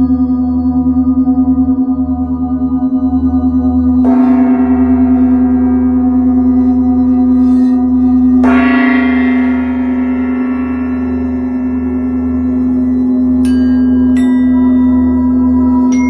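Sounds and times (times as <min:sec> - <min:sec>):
singing bowl humming: 0:00.0 - 0:16.0
singing bowl struck ringing: 0:04.0 - 0:16.0.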